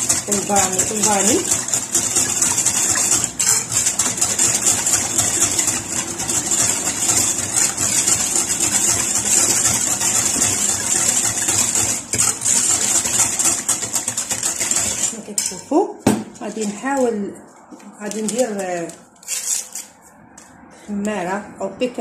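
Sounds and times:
whisk rattling against glass bowl: 0:00.0 - 0:15.7.

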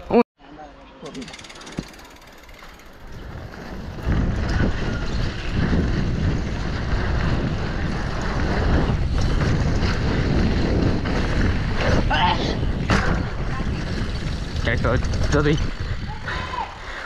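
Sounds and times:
wind buffeting microphone: 0:02.9 - 0:17.0
bike knocking over rough ground: 0:12.7 - 0:15.8.

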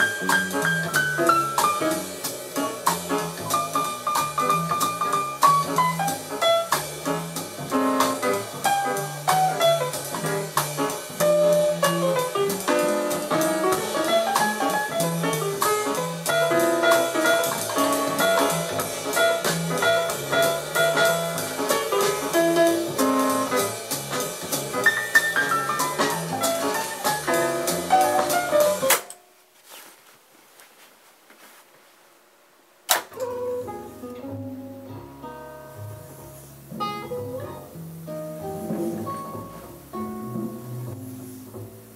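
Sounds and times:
instrumental music with drums: 0:00.0 - 0:29.0, 0:36.7 - 0:41.9
sharp tape deck click: 0:28.9 - 0:29.2, 0:32.9 - 0:33.4.

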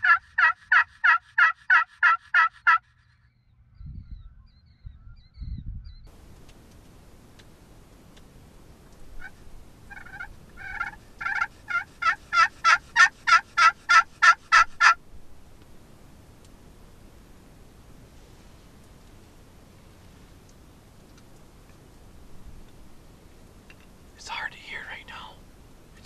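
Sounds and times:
turkey call yelps: 0:00.0 - 0:02.8, 0:09.2 - 0:15.0.

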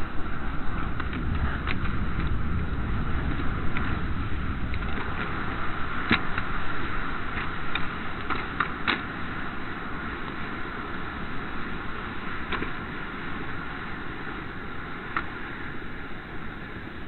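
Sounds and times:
fire crackling and popping: 0:00.0 - 0:12.8
flames roaring: 0:00.0 - 0:17.0.

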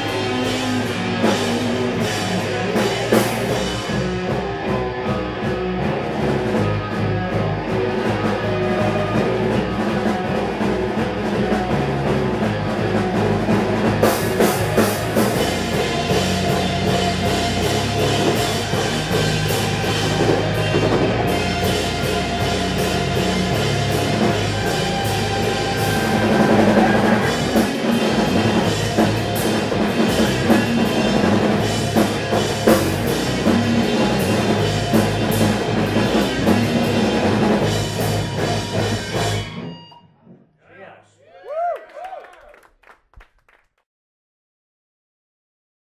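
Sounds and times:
drum kit: 0:00.0 - 0:40.0
electric guitars: 0:00.0 - 0:40.4
bass guitar: 0:00.0 - 0:40.6
cymbals: 0:14.5 - 0:33.7.

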